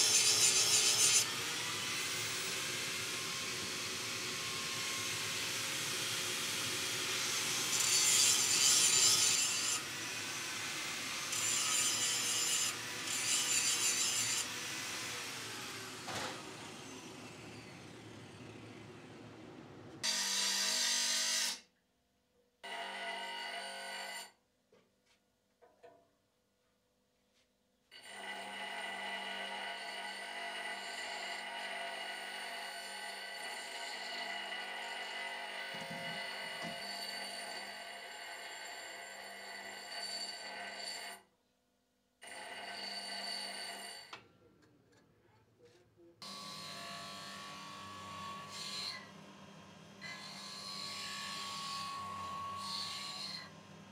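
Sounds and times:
grinder wheel grinding steel: 0.0s - 20.0s, 46.2s - 53.9s
disc grinder humming: 46.2s - 53.9s.

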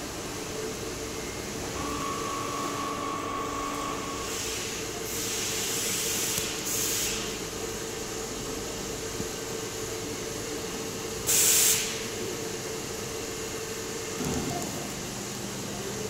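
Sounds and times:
steady mechanical hum: 0.0s - 16.0s
hiss: 4.1s - 7.5s, 11.2s - 12.1s.

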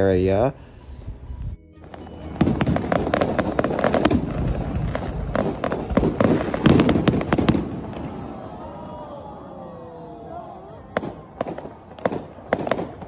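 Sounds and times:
fireworks bangs and crackles: 1.8s - 9.6s, 10.8s - 13.0s.

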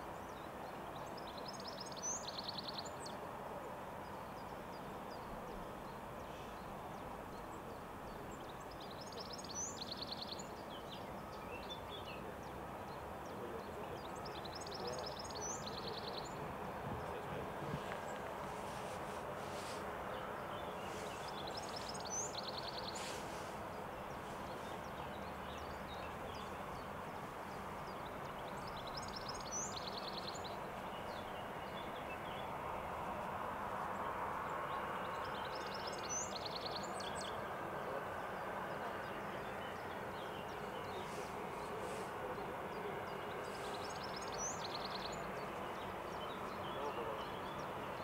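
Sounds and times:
distant jet engines humming: 10.4s - 48.0s.

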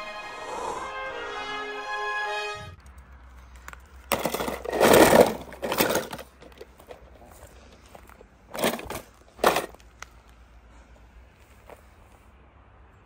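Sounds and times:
toy cars scraping over rocks: 3.3s - 9.9s.

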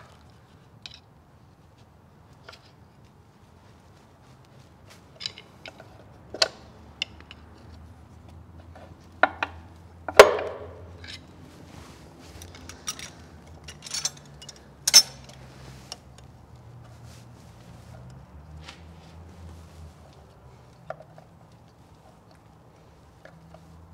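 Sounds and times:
hand tools clinking on metal: 5.1s - 7.6s, 12.4s - 15.4s.

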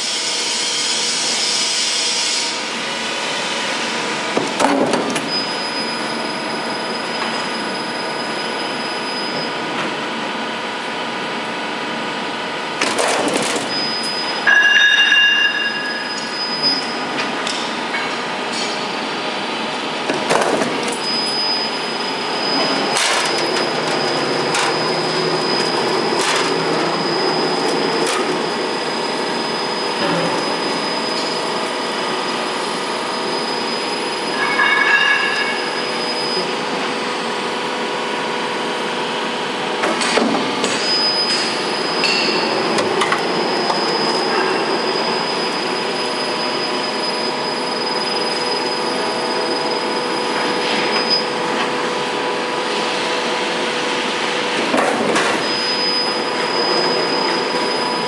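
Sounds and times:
thin high whine: 13.8s - 17.0s, 33.4s - 36.6s.

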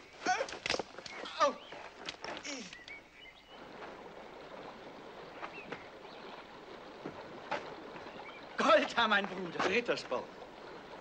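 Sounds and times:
steady rushing noise: 3.5s - 11.0s.

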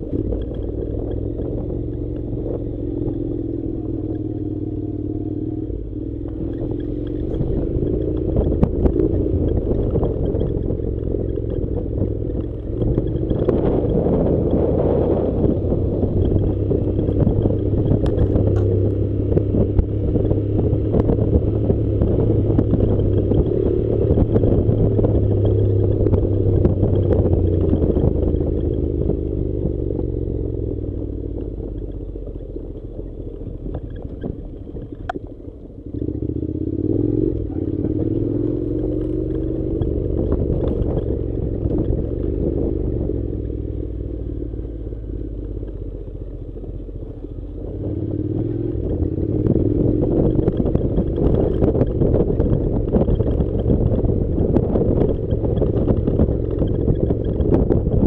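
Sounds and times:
stones rattling under motorcycle: 0.0s - 4.5s, 6.2s - 29.8s, 37.7s - 43.6s
motorcycle engine running: 0.0s - 58.0s.

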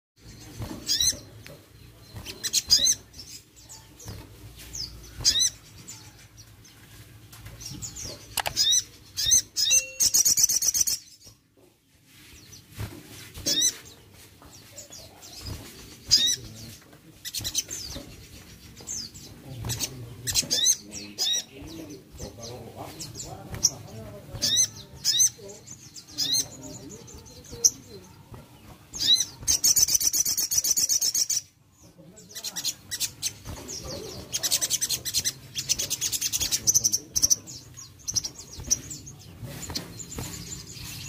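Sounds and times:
songbird chirping: 0.2s - 41.0s
fast buzzy bird trill: 8.0s - 11.1s.

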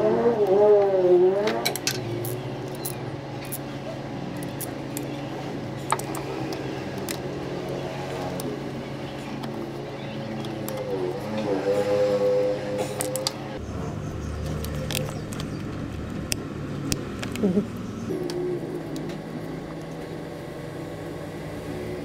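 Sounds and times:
steady low hum: 0.0s - 22.0s
wavering pitched sound: 7.4s - 13.9s.

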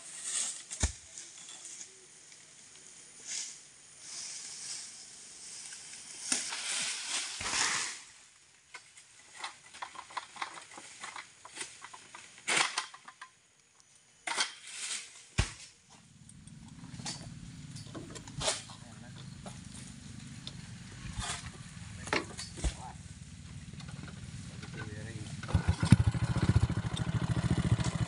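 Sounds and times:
palm fronds rustling and cracking: 0.0s - 13.3s, 14.2s - 27.8s
low steady hum: 15.9s - 27.0s
heavy thud: 20.9s - 23.0s.

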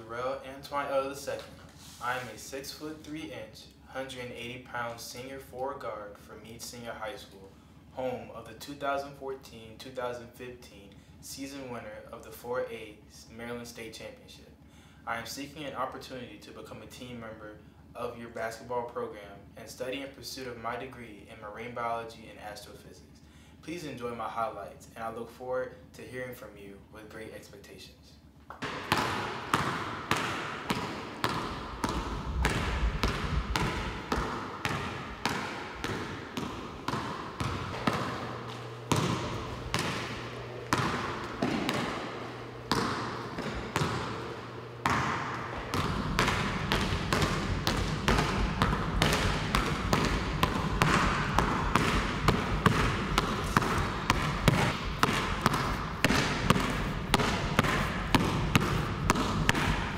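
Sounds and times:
basketball bouncing on hardwood floor: 28.5s - 59.9s
low hum: 28.6s - 59.9s.

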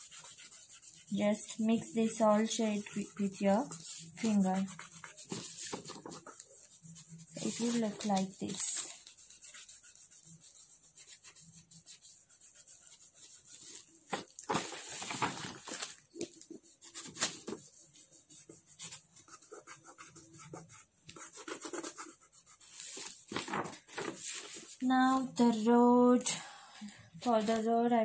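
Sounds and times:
fingertips rubbing on paper: 0.0s - 14.0s, 16.2s - 24.8s
paper rustling: 0.2s - 10.6s, 13.3s - 18.0s, 22.6s - 24.9s.

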